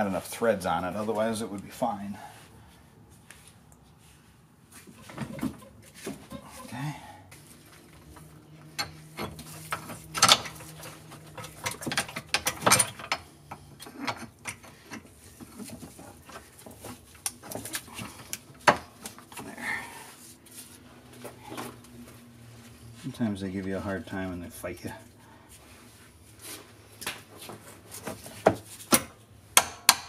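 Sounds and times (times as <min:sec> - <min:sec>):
metal parts clinking and knocking: 0:08.8 - 0:15.9.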